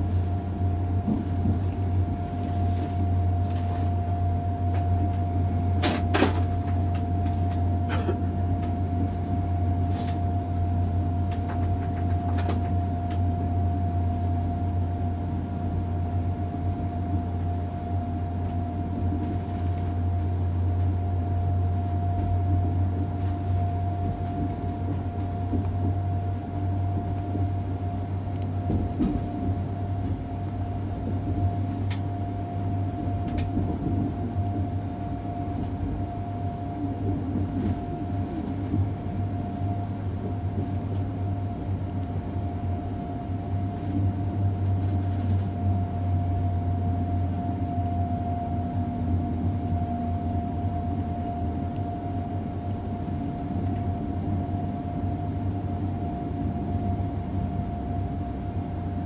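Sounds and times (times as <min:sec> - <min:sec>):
constant whine: 0:00.0 - 0:59.0
train interior running hum: 0:00.0 - 0:59.0.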